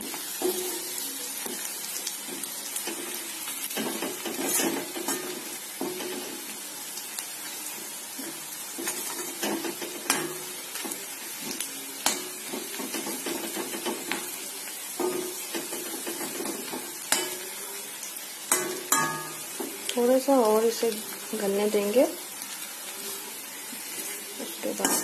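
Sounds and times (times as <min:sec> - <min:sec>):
onions sizzling in oil: 0:00.0 - 0:25.0
metal spatula scraping pan: 0:02.8 - 0:06.4, 0:23.9 - 0:25.0.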